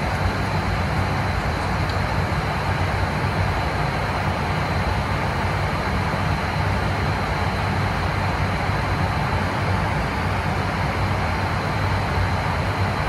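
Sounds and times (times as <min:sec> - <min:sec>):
faint high whine: 0:00.0 - 0:13.0
turboprop engines droning: 0:00.0 - 0:13.0.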